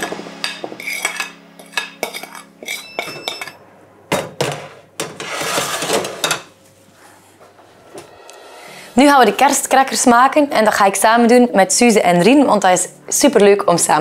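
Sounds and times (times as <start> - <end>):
metal spoon scraping ceramic bowl: 0.8 - 3.6
tray scraping into oven: 4.6 - 6.5.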